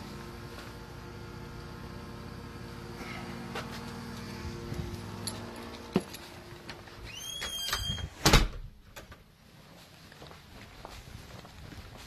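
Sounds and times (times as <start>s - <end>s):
low mechanical hum: 0.0s - 8.1s.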